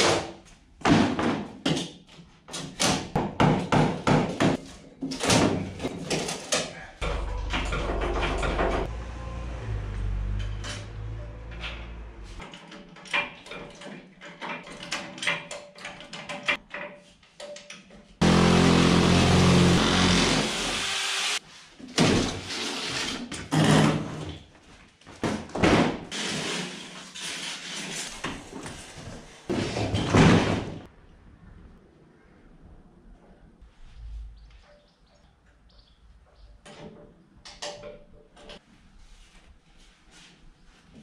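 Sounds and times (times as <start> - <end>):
knocks and clatter of steel and wood: 0.0 - 9.0, 10.2 - 18.2, 21.8 - 30.9
dragging across tile floor: 26.2 - 30.0.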